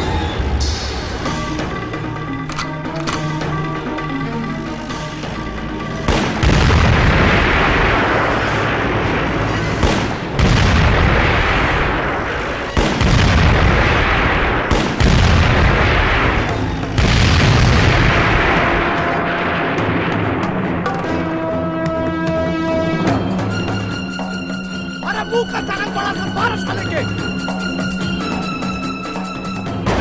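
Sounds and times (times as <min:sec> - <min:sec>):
music: 0:00.0 - 0:30.0
heavy explosion booms: 0:06.1 - 0:21.0.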